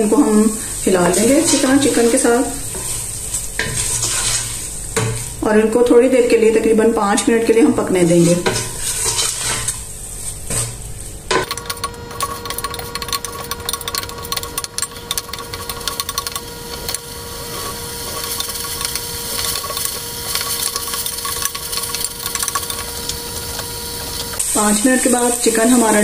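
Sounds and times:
chicken sizzling in a pot: 0.0s - 6.1s, 7.0s - 26.0s
faint steady whine: 11.3s - 26.0s
wooden spoon stirring: 11.4s - 24.5s.

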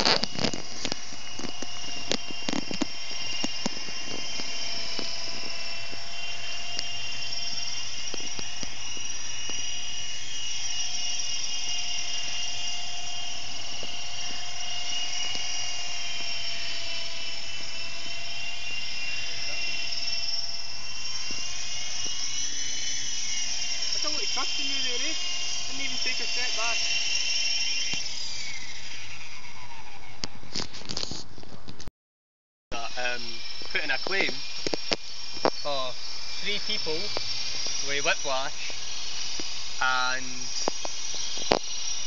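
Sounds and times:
sharp clicks: 0.0s - 11.7s, 33.6s - 35.7s, 38.7s - 41.8s
rc helicopter whine: 0.0s - 31.8s, 32.7s - 42.0s.

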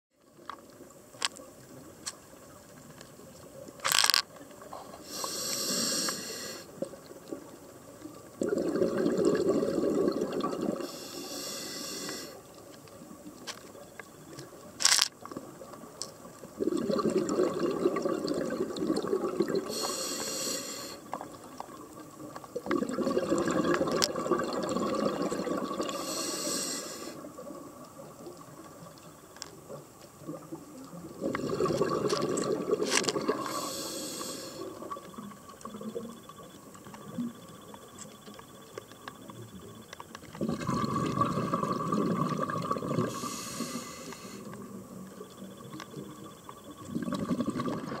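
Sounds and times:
hissing inhale through regulator: 4.8s - 6.8s, 10.6s - 12.5s, 19.5s - 21.2s, 25.8s - 27.3s, 33.0s - 35.0s, 42.8s - 44.7s
bubbling exhalations underwater: 8.4s - 11.0s, 16.6s - 20.0s, 22.6s - 26.2s, 30.2s - 36.1s, 40.3s - 43.8s, 46.8s - 48.0s.

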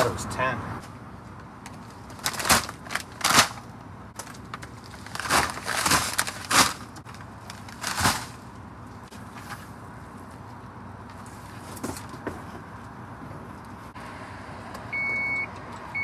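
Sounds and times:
boxes scraping and rustling: 1.8s - 8.5s
cardboard boxes thudding: 5.0s - 7.0s, 7.7s - 8.4s.

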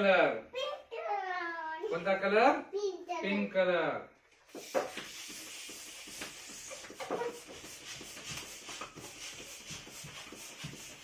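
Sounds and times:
balloon pump hissing air: 4.4s - 11.0s.

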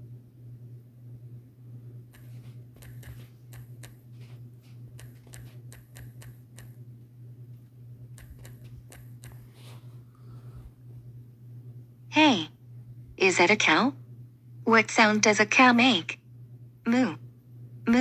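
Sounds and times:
steady low hum: 0.0s - 18.0s
phone keyboard clicks: 2.1s - 4.0s, 5.0s - 6.8s, 8.2s - 9.5s.

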